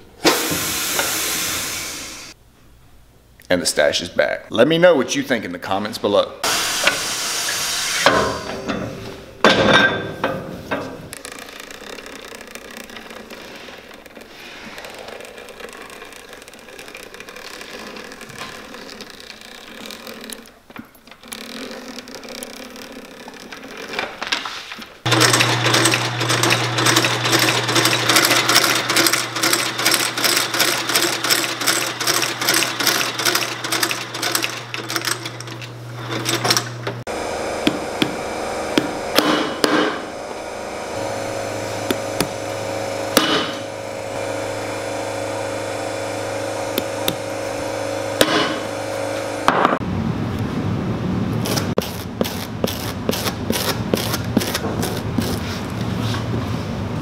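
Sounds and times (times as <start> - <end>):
stitching machine clattering: 25.1 - 36.9.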